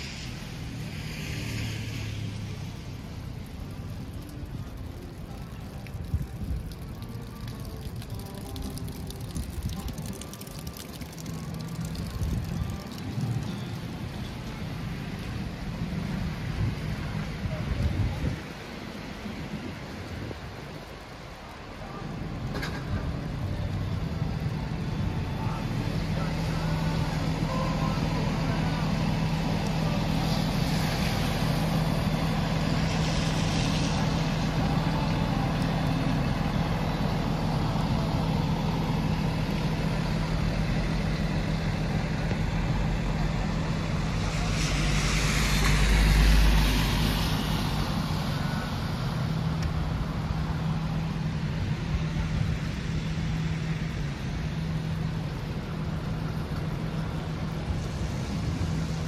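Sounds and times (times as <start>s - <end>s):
steady low traffic hum: 0.0s - 59.0s
tyres hissing on wet road: 0.0s - 59.0s.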